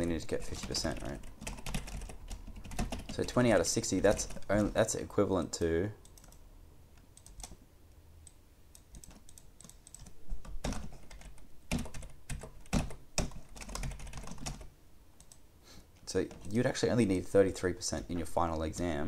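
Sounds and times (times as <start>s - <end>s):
keyboard typing: 0.0s - 5.0s, 6.0s - 6.4s, 7.0s - 7.6s, 8.2s - 15.4s, 16.0s - 16.7s.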